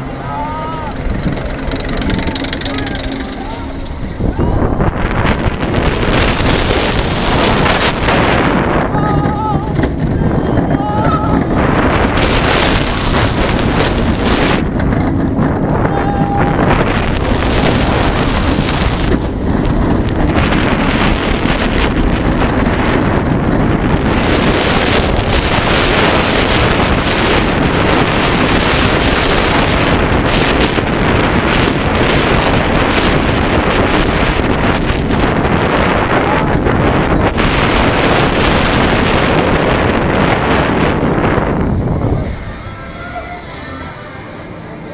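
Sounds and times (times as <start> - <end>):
roller coaster train on track: 0.0 - 44.9
wind rushing over microphone: 0.0 - 44.9.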